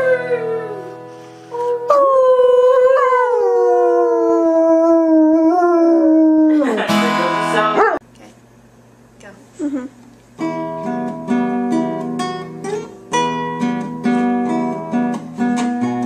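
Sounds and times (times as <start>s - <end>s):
acoustic guitar: 0.0s - 2.0s, 6.5s - 8.0s, 9.6s - 16.0s
dog howling: 1.6s - 6.7s.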